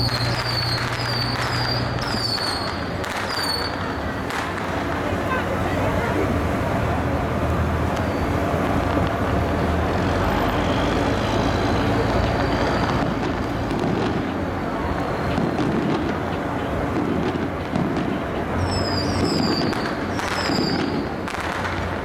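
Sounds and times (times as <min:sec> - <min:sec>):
faint firecracker pops: 0:00.0 - 0:05.2, 0:10.4 - 0:22.0.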